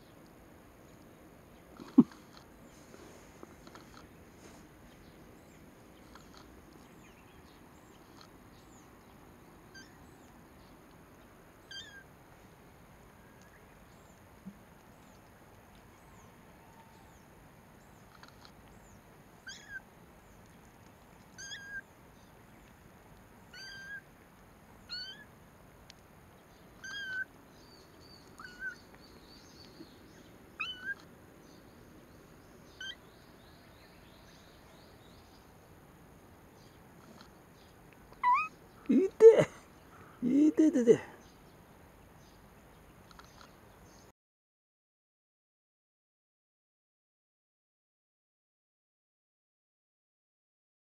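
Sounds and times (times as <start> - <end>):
kittens mewing: 1.8 - 2.4, 21.4 - 21.8, 23.5 - 24.0, 26.8 - 27.2, 28.3 - 28.8, 30.6 - 31.1, 38.1 - 39.6.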